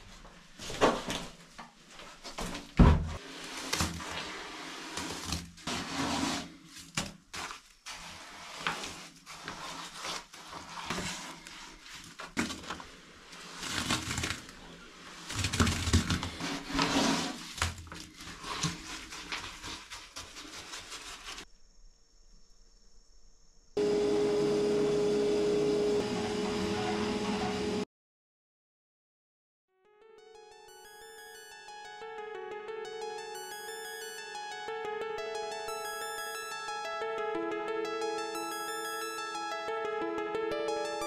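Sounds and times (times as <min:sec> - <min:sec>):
wet concrete scraped from bucket: 0:03.2 - 0:06.8, 0:07.4 - 0:21.4.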